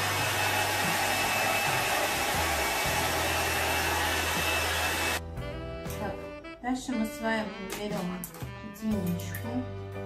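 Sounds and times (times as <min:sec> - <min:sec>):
hair dryer running: 0:00.0 - 0:05.2.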